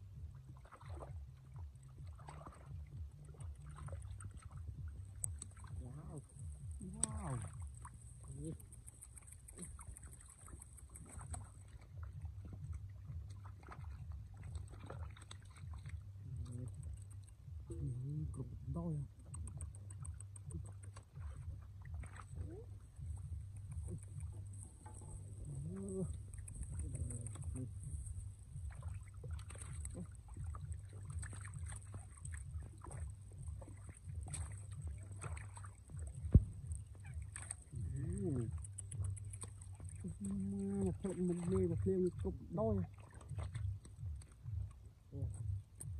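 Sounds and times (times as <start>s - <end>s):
low steady rumble: 0.0s - 45.9s
hands splashing in muddy water: 6.8s - 16.8s
hands splashing muddy water: 6.8s - 17.3s, 23.6s - 42.2s.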